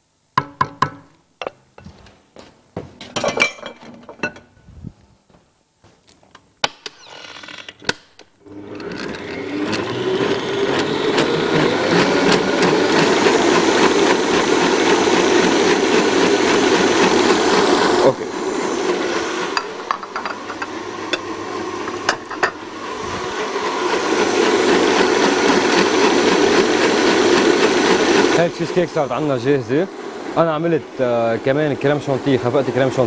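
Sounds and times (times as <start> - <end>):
stand mixer whisking: 8.4 - 33.0
utensils clinking against steel bowl: 19.6 - 21.3, 22.0 - 22.6.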